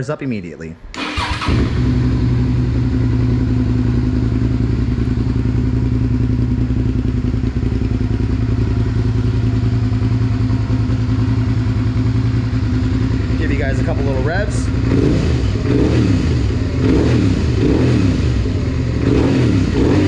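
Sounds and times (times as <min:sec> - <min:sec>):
motorcycle engine idling: 0:01.0 - 0:20.0.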